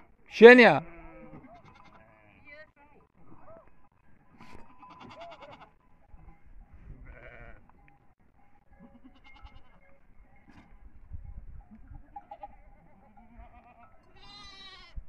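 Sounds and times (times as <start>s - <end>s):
sheep and goats bleating: 0.4s - 3.7s, 4.3s - 7.9s, 8.7s - 10.0s, 11.7s - 15.0s.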